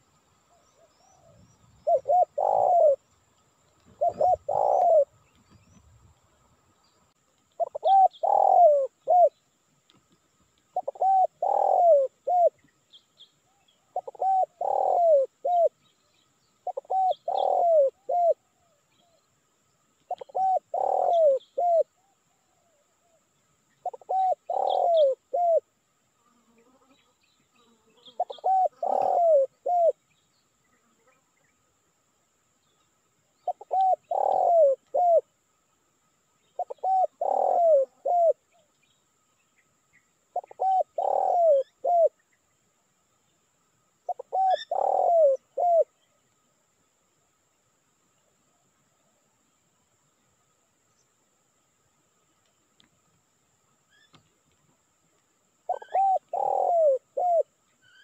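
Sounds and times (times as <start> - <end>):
small birds chirping: 0.0 - 25.6, 26.4 - 31.7, 32.6 - 35.4, 36.4 - 43.4, 44.0 - 46.5, 53.8 - 58.0
dove cooing: 0.5 - 3.1, 3.8 - 5.6, 7.6 - 9.4, 10.7 - 12.7, 13.5 - 15.8, 16.6 - 19.2, 20.1 - 23.2, 23.8 - 25.7, 28.0 - 30.0, 33.4 - 35.3, 36.6 - 38.4, 40.3 - 42.2, 44.1 - 45.9, 55.7 - 58.0.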